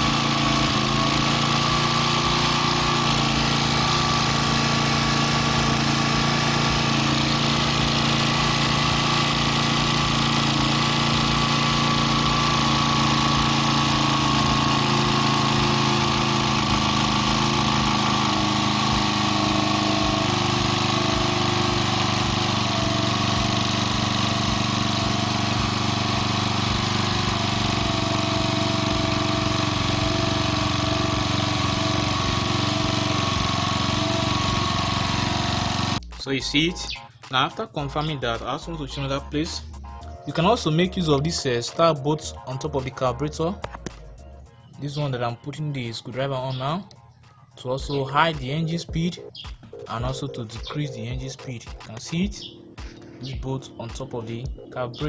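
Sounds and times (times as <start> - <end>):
small generator engine running: 0.0 - 36.9.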